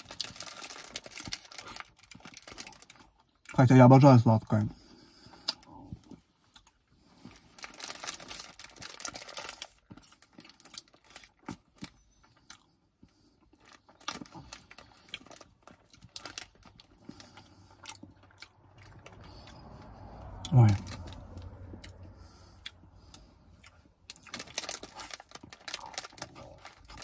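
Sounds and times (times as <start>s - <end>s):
crunching wafer cone: 0.0s - 3.6s, 6.5s - 12.7s, 13.4s - 20.0s, 22.6s - 27.0s.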